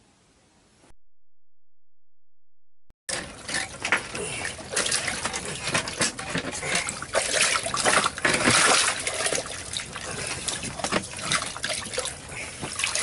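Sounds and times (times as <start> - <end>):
water sloshing and trickling: 3.1 - 13.0
water splashes: 3.1 - 13.0.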